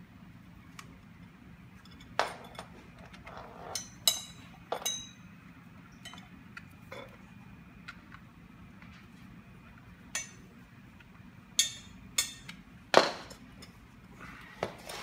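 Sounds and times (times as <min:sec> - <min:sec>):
screwdriver clinking on metal tubes: 0:01.8 - 0:05.2.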